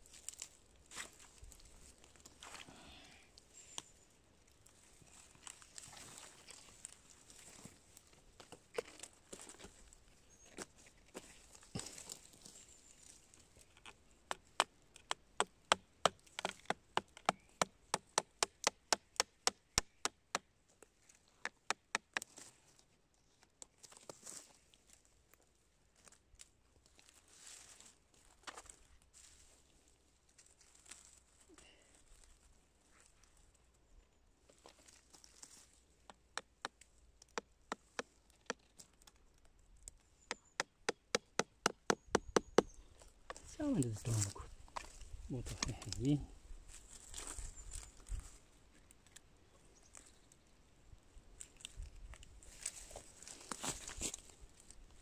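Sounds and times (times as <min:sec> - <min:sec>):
hammer striking chisel into wood: 0:40.4 - 0:42.7.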